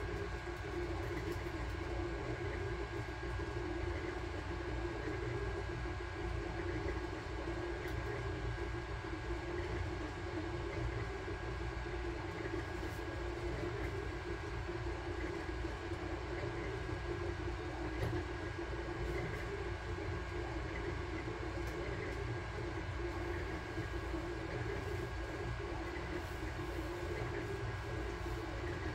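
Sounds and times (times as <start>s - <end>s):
three d printer mechanical hum: 0.0s - 28.9s.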